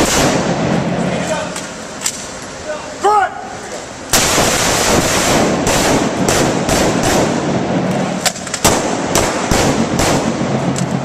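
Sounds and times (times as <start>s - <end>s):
rifle shots echoing: 0.0s - 1.0s, 4.1s - 10.8s.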